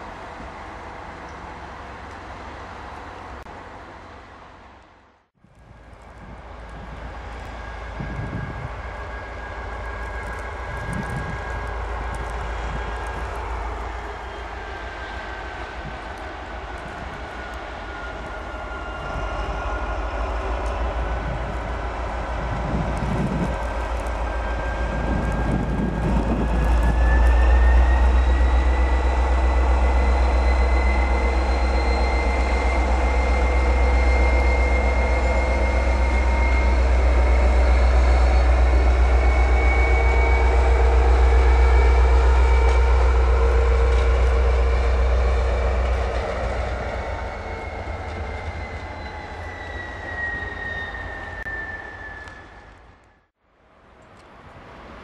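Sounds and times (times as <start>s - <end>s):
locomotive engine drone: 0.0s - 53.3s
high whine: 16.8s - 53.3s.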